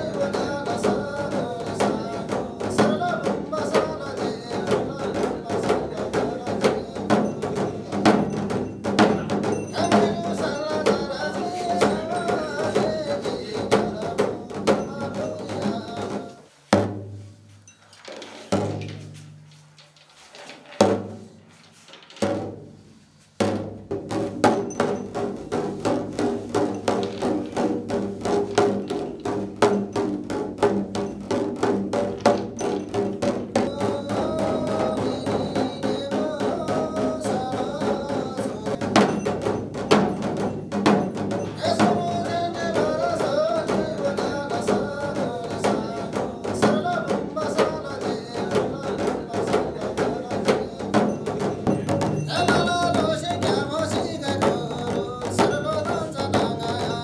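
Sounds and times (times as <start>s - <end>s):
person chanting: 0.0s - 8.4s, 9.0s - 16.5s, 33.6s - 39.0s, 41.5s - 57.0s
frame drums beaten with sticks: 0.0s - 19.9s, 20.7s - 57.0s.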